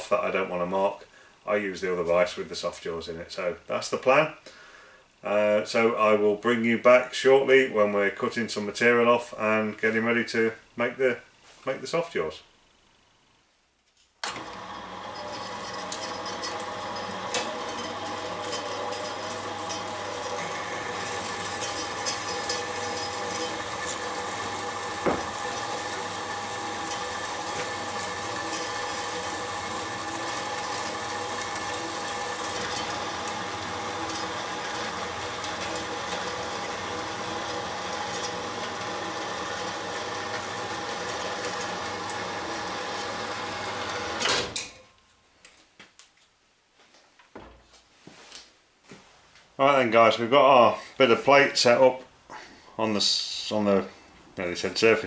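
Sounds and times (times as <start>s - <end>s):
bandsaw stopping with clunk: 14.2s - 44.8s
bandsaw cutting metal: 14.3s - 44.8s.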